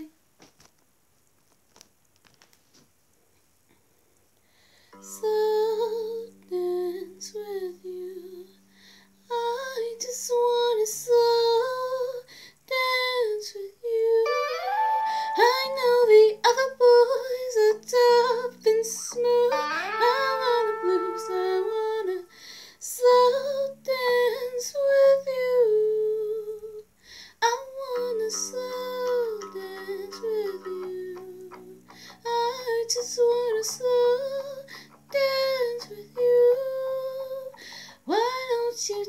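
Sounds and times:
woman singing slow song: 0:05.0 - 0:39.0
soft backing track chords: 0:14.2 - 0:24.7.

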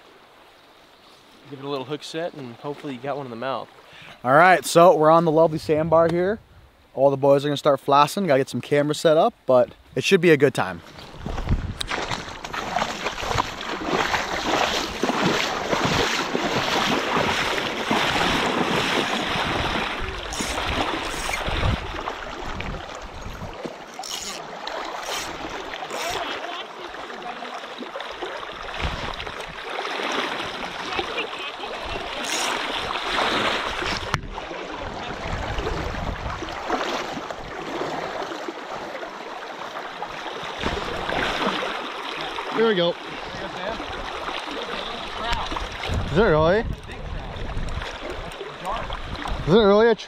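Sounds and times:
river rushing and splashing: 0:10.8 - 0:46.1
wind rumble on microphone: 0:11.0 - 0:13.6, 0:18.1 - 0:23.6, 0:28.7 - 0:29.6, 0:33.7 - 0:37.6, 0:45.2 - 0:49.6.

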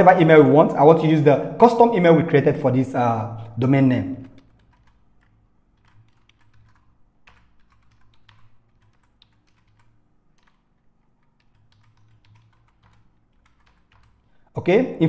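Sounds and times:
low steady hum: 0:00.0 - 0:15.0
keyboard typing: 0:04.0 - 0:14.4.

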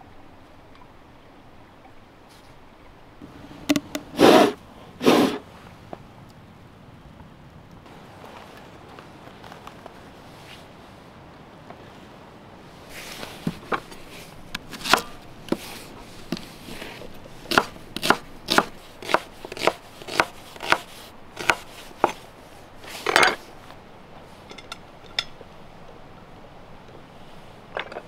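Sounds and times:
knife chopping onion on wooden board: 0:17.5 - 0:22.2.

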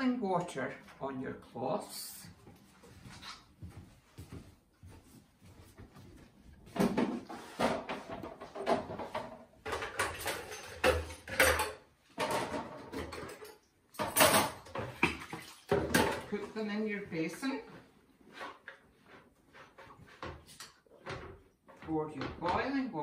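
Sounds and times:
knocks and clatters in kitchen sink: 0:06.7 - 0:16.6, 0:19.6 - 0:23.0.

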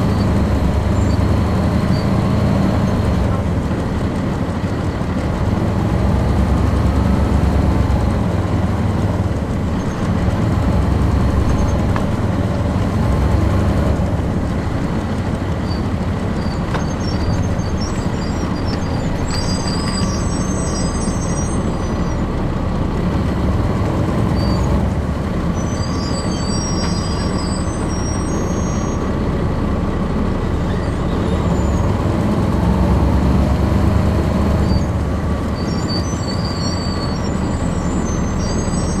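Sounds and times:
bus diesel engine drone: 0:00.0 - 0:39.0
faint high squeaks or rattles: 0:11.2 - 0:12.0, 0:15.5 - 0:22.3, 0:25.5 - 0:29.2, 0:30.6 - 0:31.9, 0:34.6 - 0:39.0.

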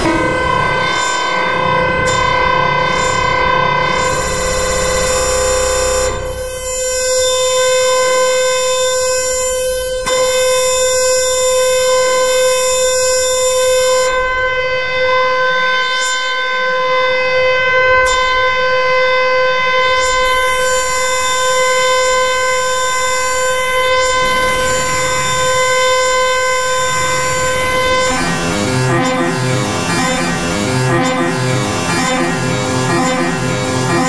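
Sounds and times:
dense wall of synth notes: 0:00.0 - 0:10.0, 0:22.3 - 0:34.0
steady held tones: 0:24.1 - 0:34.0.

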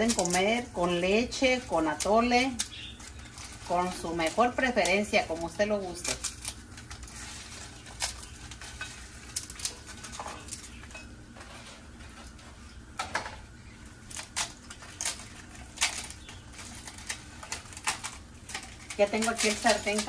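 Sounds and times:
brittle pastry cracking: 0:00.0 - 0:11.1, 0:13.7 - 0:20.0
pieces clattering against bowl: 0:14.8 - 0:20.0.

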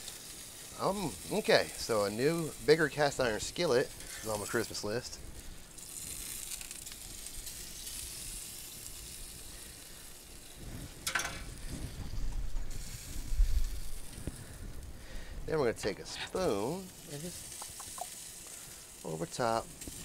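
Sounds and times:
sauce sizzling in a skillet: 0:00.0 - 0:20.0
low rumbling thumps: 0:11.5 - 0:15.5.

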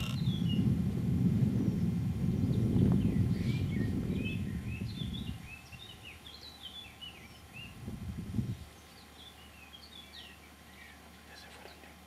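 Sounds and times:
small birds chirping: 0:00.0 - 0:00.7, 0:01.6 - 0:12.0
low rumbling noise: 0:00.0 - 0:09.6.

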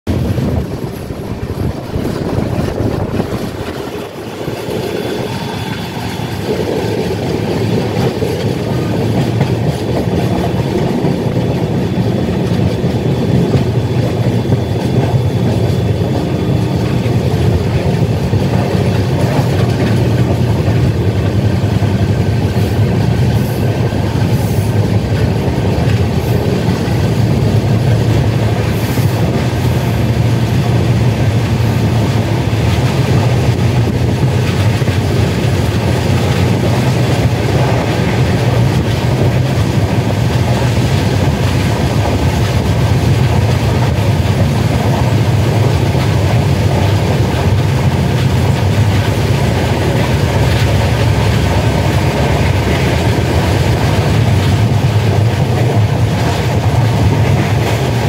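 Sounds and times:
train wheels rumbling on track: 0:00.0 - 0:58.0.

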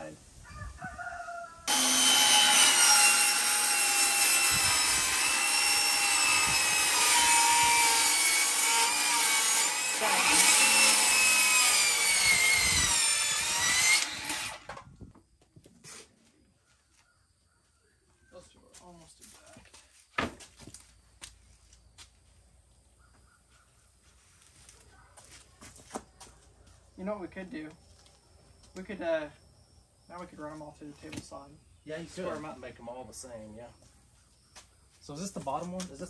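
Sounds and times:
circular saw cutting wood: 0:01.7 - 0:14.9.

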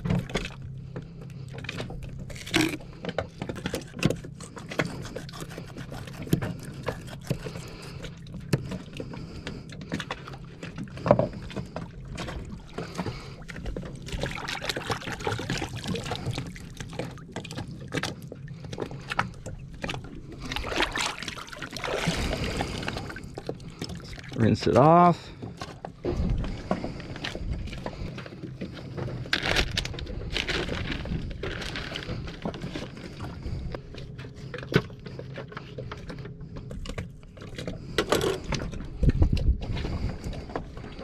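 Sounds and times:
steady low hum: 0:00.0 - 0:41.0
water lapping against hull: 0:00.0 - 0:41.0.

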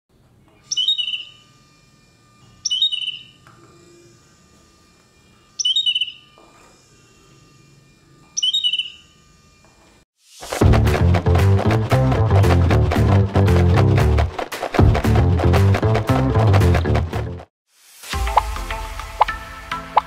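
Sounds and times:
recorded bird chirps: 0:00.6 - 0:01.4, 0:02.6 - 0:03.4, 0:05.6 - 0:06.3, 0:08.4 - 0:09.1.

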